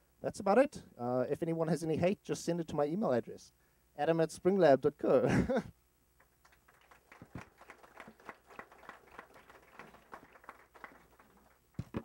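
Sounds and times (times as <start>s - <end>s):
faint scattered applause: 6.2s - 12.0s.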